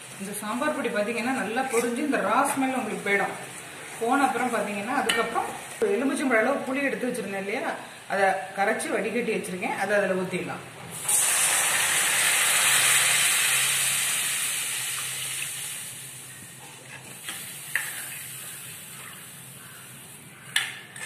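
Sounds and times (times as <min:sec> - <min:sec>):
liquid sizzling in hot oil: 0:00.0 - 0:05.8, 0:10.9 - 0:20.2.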